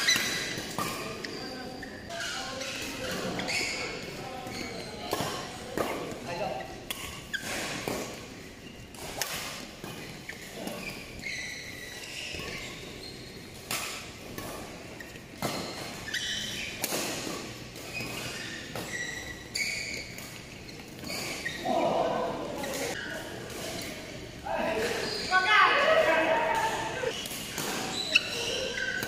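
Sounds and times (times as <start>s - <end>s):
sneakers squeaking on court: 0.0s - 29.0s
rackets striking shuttlecock: 6.8s - 8.3s.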